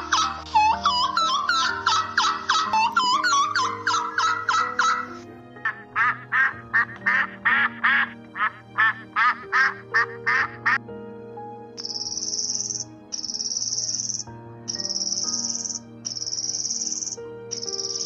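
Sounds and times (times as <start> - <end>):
background music with held notes: 0.0 - 18.0
ducks quacking: 3.8 - 10.8.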